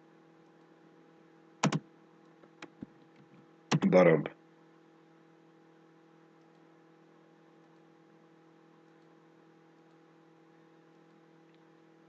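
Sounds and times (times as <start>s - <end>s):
faint electrical hum: 0.0s - 12.0s
computer mouse clicks: 1.6s - 1.8s, 6.4s - 6.7s, 8.8s - 9.2s.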